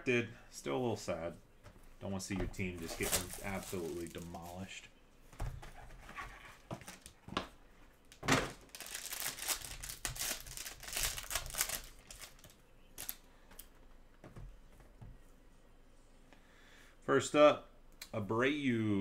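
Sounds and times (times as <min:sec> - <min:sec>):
foil wrapper crinkling and tearing: 0:02.9 - 0:04.7, 0:08.6 - 0:13.2.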